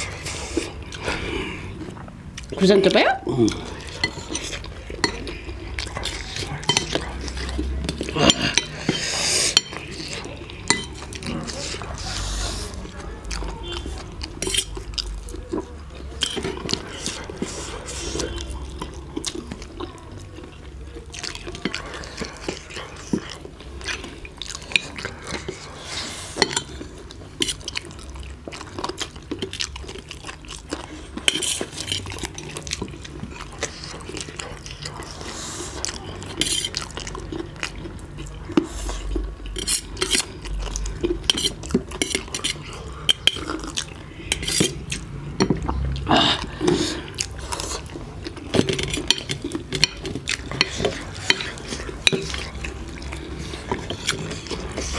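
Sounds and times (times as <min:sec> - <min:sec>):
noodles slurped and chewed: 0:00.0 - 0:54.9
cutlery clicking on plates: 0:48.5 - 0:52.5.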